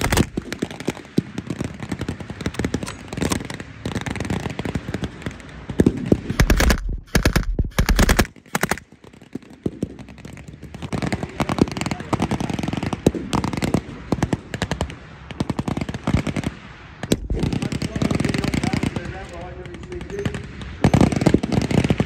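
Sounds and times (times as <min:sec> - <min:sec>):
machine-gun bursts: 0:00.0 - 0:00.9, 0:02.4 - 0:03.5, 0:06.3 - 0:08.8
rifle shots: 0:00.0 - 0:09.0, 0:09.6 - 0:22.0.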